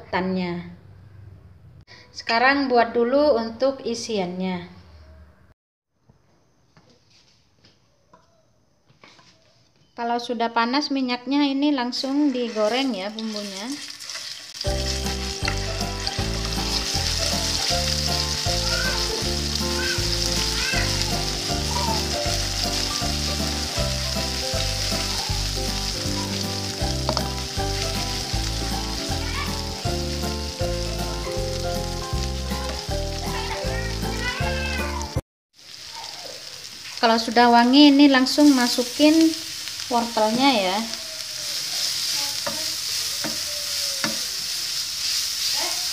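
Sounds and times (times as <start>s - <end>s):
paste sizzling in hot oil: 11.9s - 45.9s
wooden spatula stirring: 12.0s - 35.1s, 41.3s - 45.9s.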